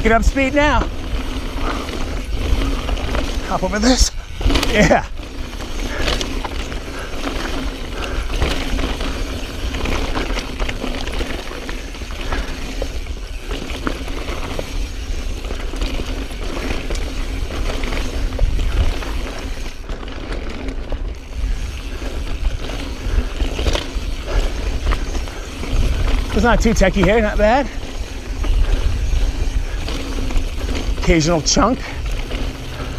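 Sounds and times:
bike rattling with clicks: 0:00.0 - 0:32.9
bike tyres rolling over rock: 0:00.0 - 0:32.9
wind rumble on microphone: 0:11.4 - 0:19.9, 0:21.0 - 0:31.2.

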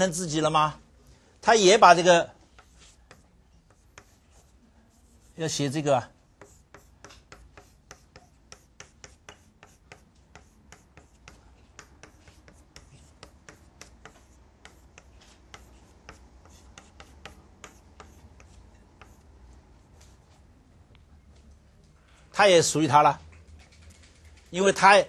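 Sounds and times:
chalk scratching on blackboard: 0:02.5 - 0:20.2.

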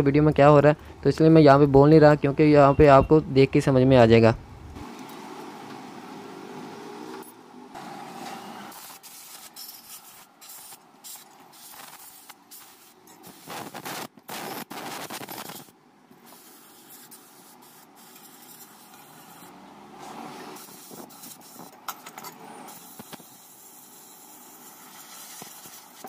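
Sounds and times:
air blow gun hissing: 0:07.8 - 0:21.7.

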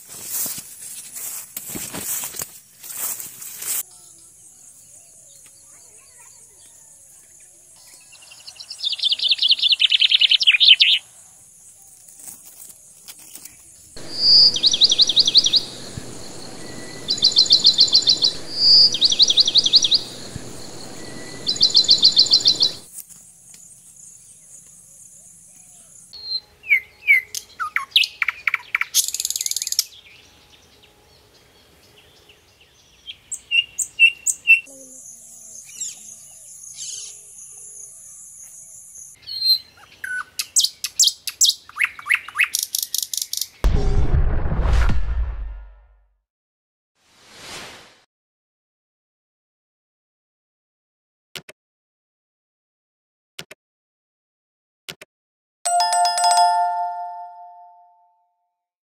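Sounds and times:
songbirds singing: 0:12.9 - 0:43.6
high-pitched hiss: 0:14.0 - 0:22.9.

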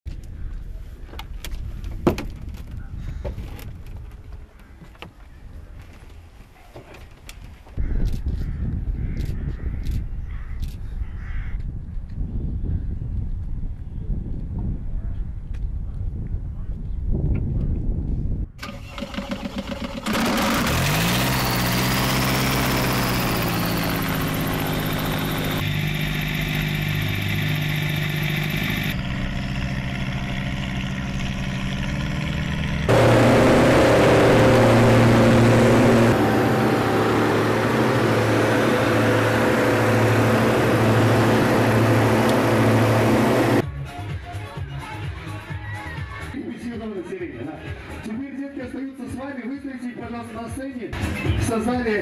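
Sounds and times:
propeller engines droning: 0:20.0 - 0:43.6.

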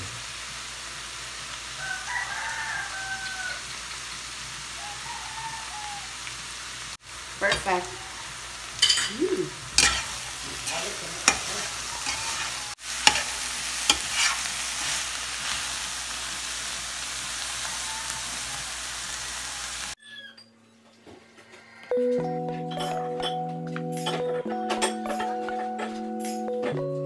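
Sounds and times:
meat sizzling in a pot: 0:00.0 - 0:20.0
spatula clinking on pot: 0:08.8 - 0:09.2, 0:09.8 - 0:13.3
spatula scraping a pot: 0:09.8 - 0:15.0.

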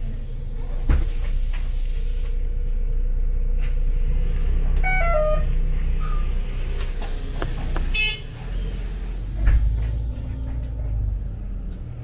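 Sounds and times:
bus engine rumble: 0:00.0 - 0:12.0.

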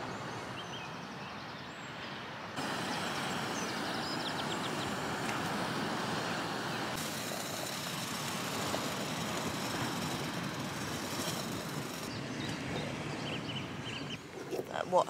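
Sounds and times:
wind: 0:00.0 - 0:15.0
gas stove hissing: 0:02.6 - 0:12.2
sea surf: 0:02.6 - 0:14.4.

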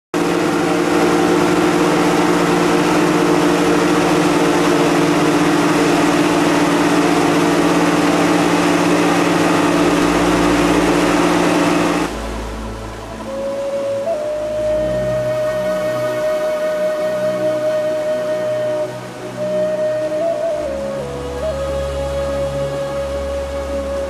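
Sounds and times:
boat motor humming: 0:00.1 - 0:24.0.

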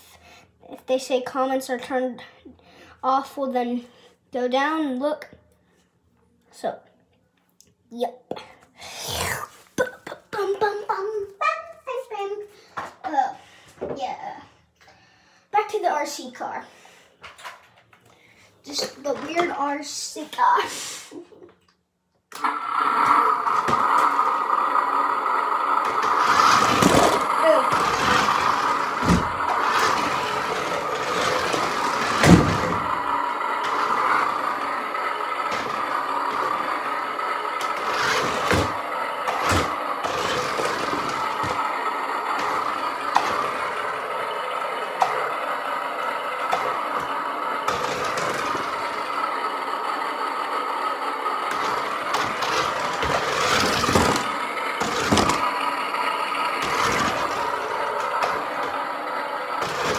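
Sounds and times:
toy truck electric motor whine: 0:22.3 - 0:59.9
plastic toy truck knocks and rattles: 0:51.5 - 0:55.6.

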